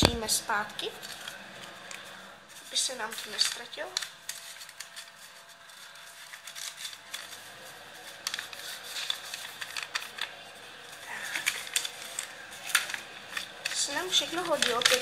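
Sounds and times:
paper and packaging crinkling: 0:00.0 - 0:15.0.

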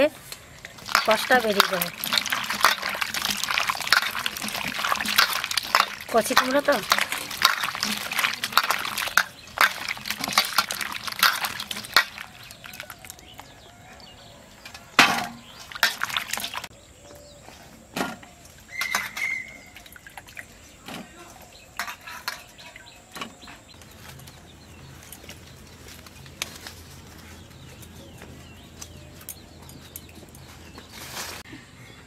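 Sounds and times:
steel bowls clattering: 0:00.6 - 0:13.5, 0:14.6 - 0:16.7, 0:18.1 - 0:23.3
hands splashing in water: 0:00.8 - 0:13.2, 0:15.6 - 0:16.7.

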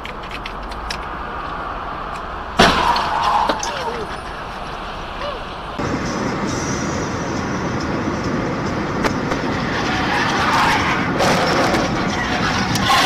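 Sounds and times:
car tyre and wind noise: 0:00.0 - 0:13.0
car scraping metal guardrail: 0:02.6 - 0:05.2, 0:09.0 - 0:13.0.

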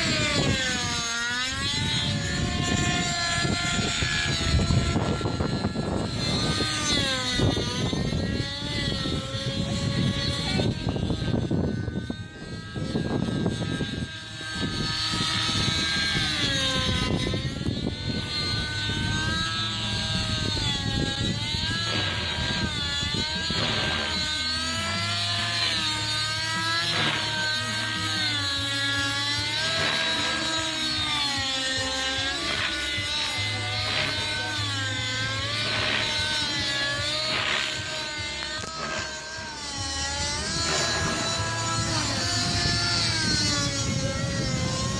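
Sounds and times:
model helicopter engine and rotors: 0:00.0 - 0:44.9.

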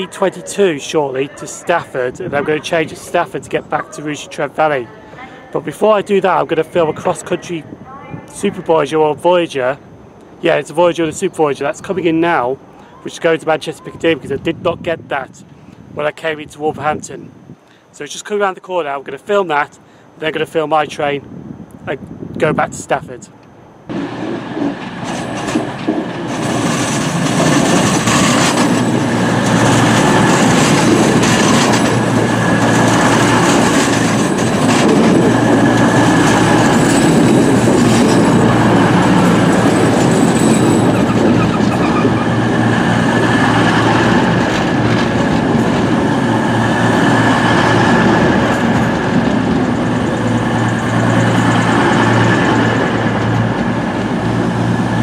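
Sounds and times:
diesel engines humming: 0:00.0 - 0:08.8, 0:23.4 - 0:55.0
train wheels rumbling on rails: 0:23.9 - 0:55.0
thin high squeal: 0:39.1 - 0:43.4.

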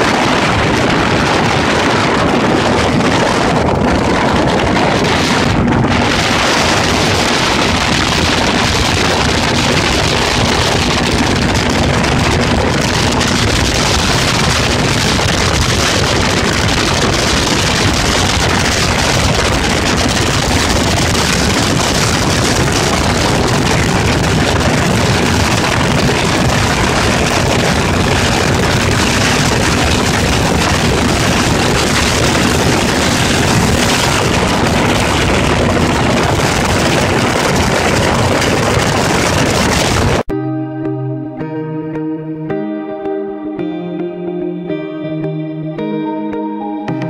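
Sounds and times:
motorboat engine running: 0:00.0 - 0:40.3
rush of wind and water: 0:00.0 - 0:40.3
guitar music: 0:40.3 - 0:47.0.

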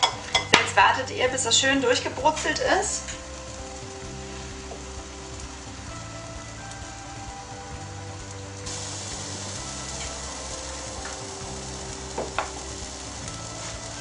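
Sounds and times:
batter sizzling in a pan: 0:00.0 - 0:14.0.

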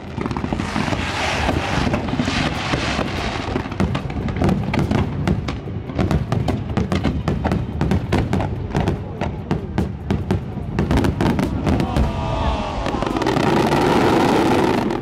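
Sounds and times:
firework crackling hiss: 0:00.0 - 0:06.4, 0:09.6 - 0:15.0.

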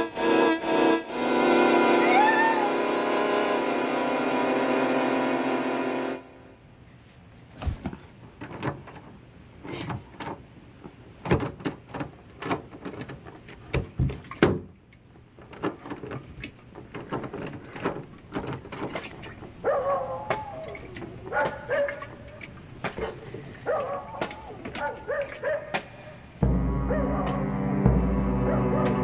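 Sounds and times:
music: 0:00.0 - 0:06.6, 0:26.4 - 0:29.0
doorknob rattling and latch clacking: 0:11.2 - 0:14.6.

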